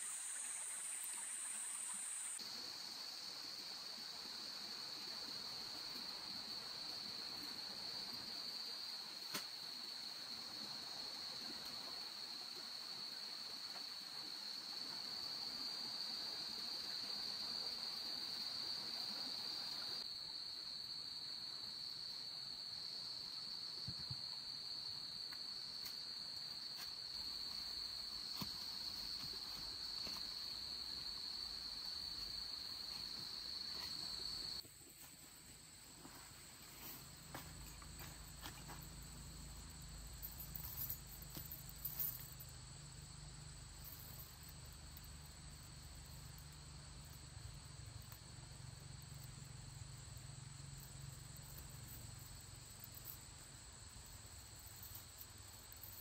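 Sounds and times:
faint high insect tone: 0.0 - 56.0.

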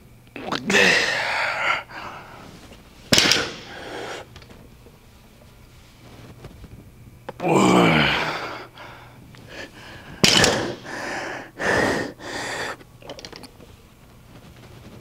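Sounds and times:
man groaning with effort: 0.6 - 2.0, 7.4 - 8.8
heavy hissing breaths: 0.7 - 4.4, 7.6 - 12.9.

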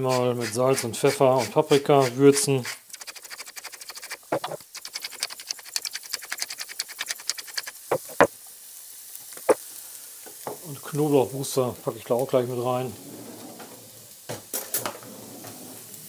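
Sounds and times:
spice mill grinding: 0.1 - 8.3
sharp taps: 7.3 - 8.3.

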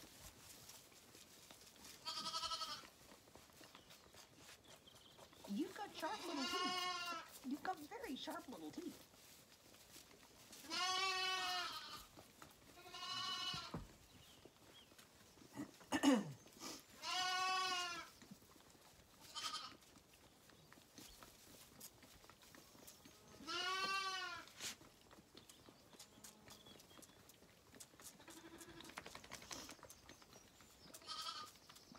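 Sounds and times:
lambs bleating: 2.0 - 2.9, 5.8 - 7.4, 10.6 - 13.8, 17.0 - 18.1, 19.2 - 19.9, 23.1 - 24.7, 28.2 - 28.9, 30.9 - 31.6.

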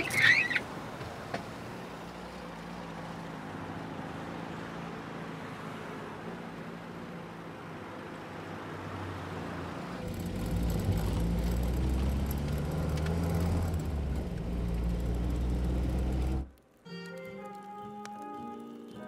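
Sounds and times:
car engine from inside cabin: 9.4 - 16.5.

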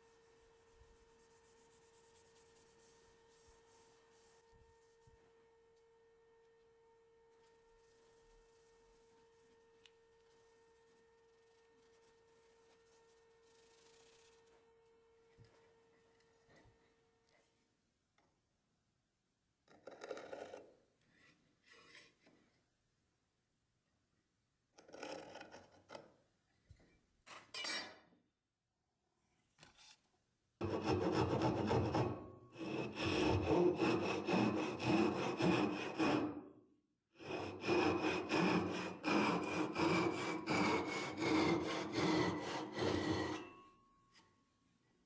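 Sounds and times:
blade scraping along steel square: 30.6 - 36.4, 37.2 - 43.6
handsaw cutting wood: 30.6 - 36.5, 37.2 - 43.5.

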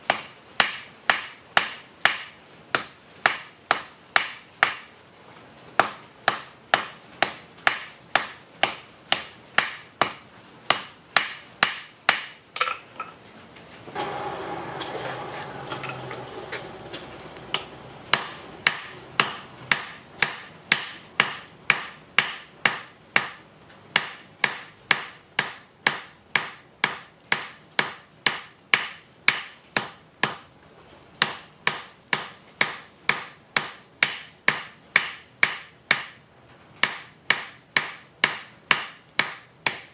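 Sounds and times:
hammer striking hot metal on anvil: 17.5 - 23.4, 24.0 - 30.4.

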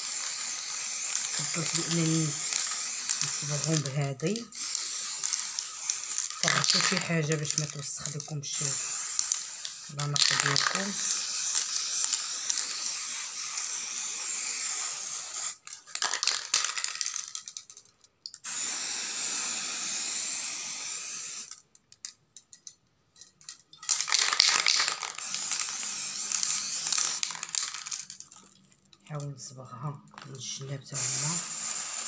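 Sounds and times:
spray can hissing: 0.0 - 17.2, 18.4 - 21.6, 23.8 - 28.1, 31.0 - 32.0.

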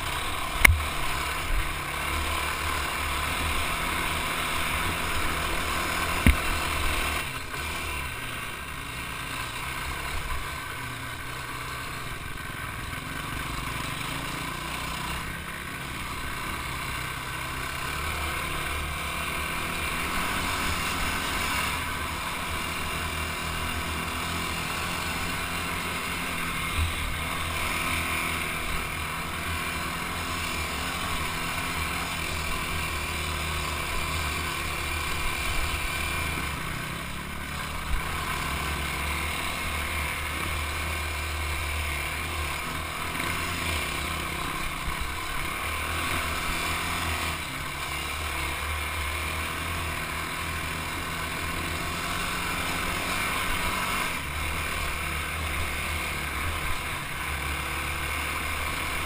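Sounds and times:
dirt bike engine running: 0.0 - 59.0
sharp knock: 0.7 - 0.9.

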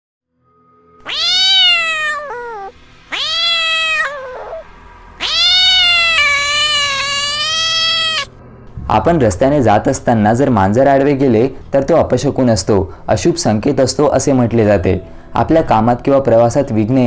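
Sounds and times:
cat meowing: 1.0 - 8.3.

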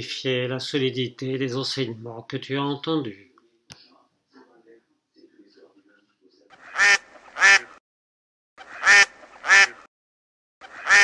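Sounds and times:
duck quacking: 6.5 - 7.8, 8.6 - 9.9, 10.6 - 11.0.

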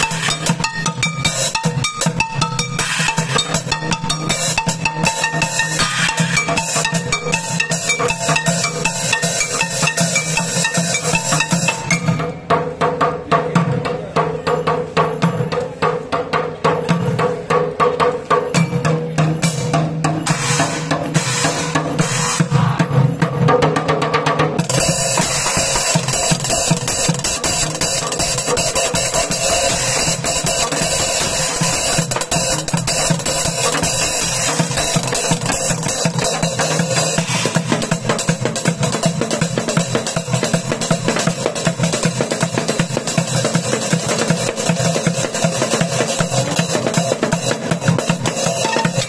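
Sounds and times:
cracked cymbals: 0.0 - 12.1
fast drumming on junk percussion: 0.0 - 49.0.

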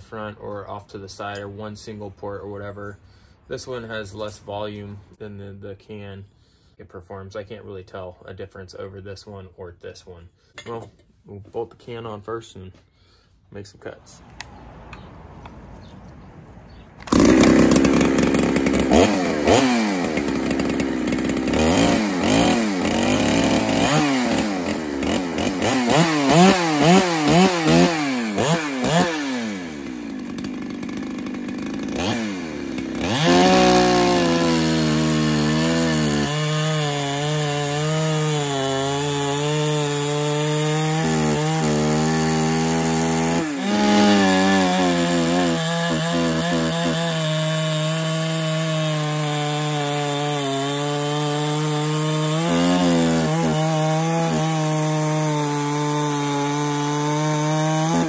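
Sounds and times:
chainsaw cutting through log: 16.7 - 58.0
chainsaw revving: 16.7 - 58.0.

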